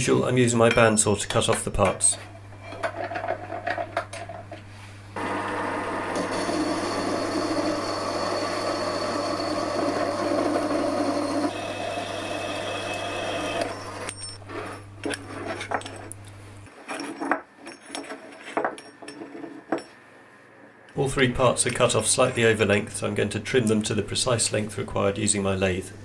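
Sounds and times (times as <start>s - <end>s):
bandsaw cutting metal: 5.2s - 14.2s
motor hum: 5.2s - 14.4s.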